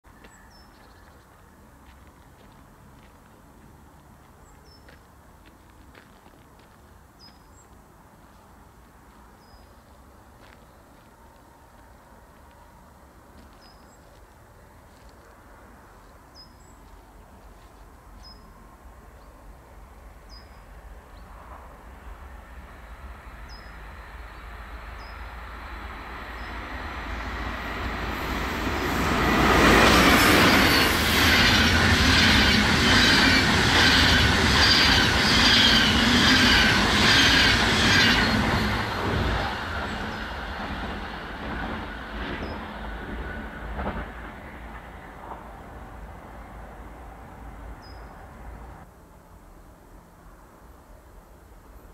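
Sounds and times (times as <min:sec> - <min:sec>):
train rumble passing: 0:16.9 - 0:48.9.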